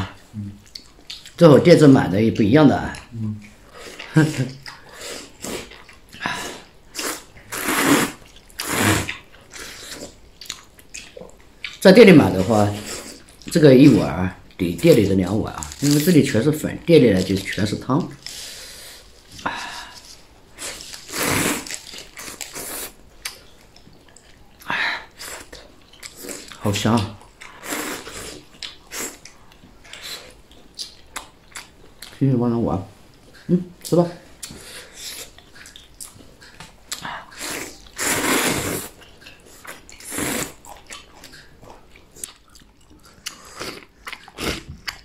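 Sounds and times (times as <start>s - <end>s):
mouth and chewing noises: 0.1s - 1.4s, 2.4s - 14.6s, 17.2s - 32.2s, 33.2s - 45.0s
person slurping noodles: 4.9s - 10.2s, 20.6s - 21.8s, 27.6s - 29.2s, 37.2s - 40.7s.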